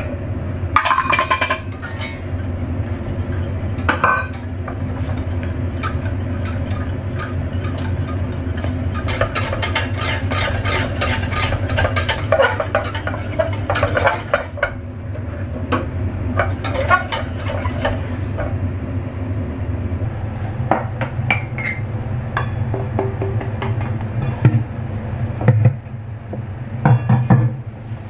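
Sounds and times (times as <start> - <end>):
steady low hum: 0.0 - 28.0
whisk clicking and scraping pan: 1.7 - 14.8, 16.4 - 18.5.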